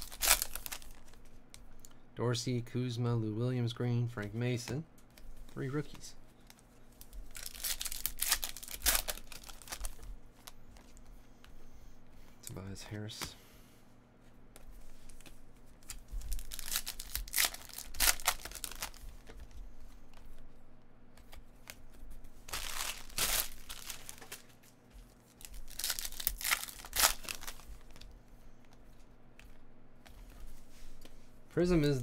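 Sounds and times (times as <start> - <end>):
foil pack crinkling and tearing: 0.0 - 1.2, 7.0 - 10.5, 15.8 - 19.0, 22.4 - 28.0.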